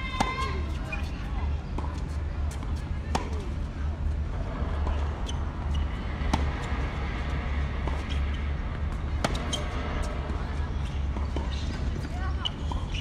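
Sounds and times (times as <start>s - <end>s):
tennis ball struck by rackets: 8.9s - 9.6s.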